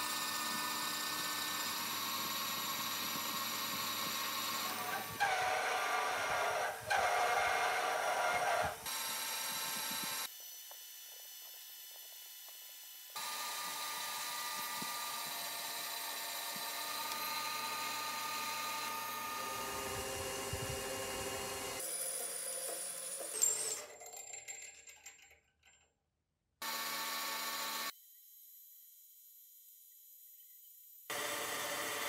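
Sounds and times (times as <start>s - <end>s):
metal lathe cutting whine: 0.0s - 8.8s, 13.2s - 21.8s.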